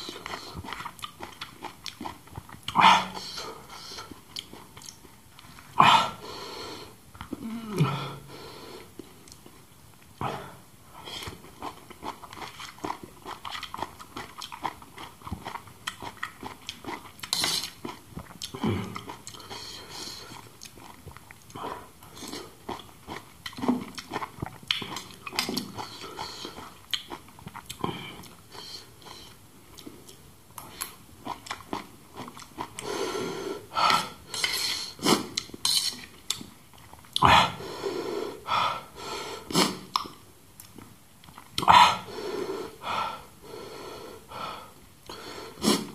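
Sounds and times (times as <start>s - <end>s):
wet chewing: 0.0s - 2.8s, 11.3s - 28.4s.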